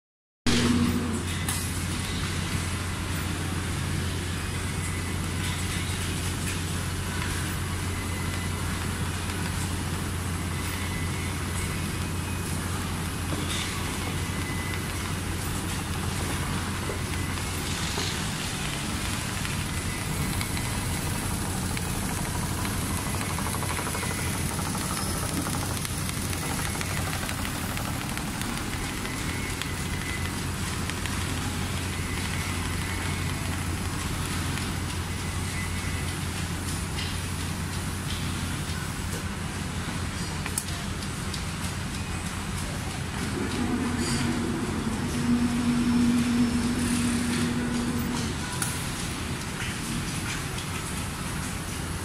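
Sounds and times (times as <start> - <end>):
sewing machine running: 12.8 - 35.7.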